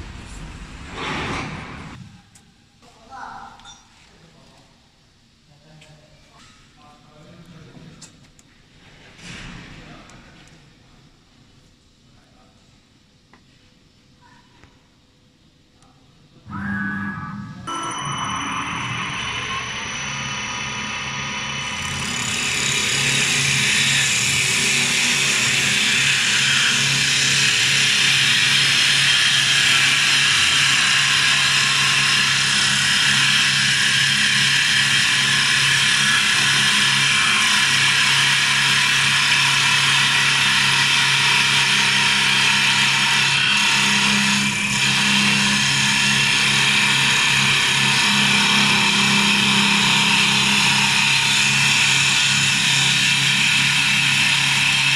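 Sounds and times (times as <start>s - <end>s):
lathe motor hum: 18.0s - 54.9s
cutters shaving spinning wood: 19.8s - 54.9s.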